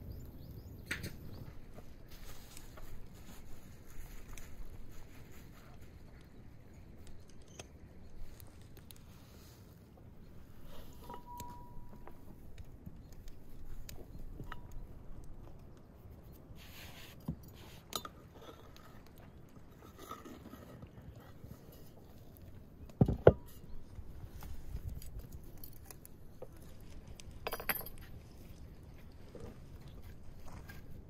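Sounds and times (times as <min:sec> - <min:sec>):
bowls and utensils clinking: 0:10.9 - 0:12.1.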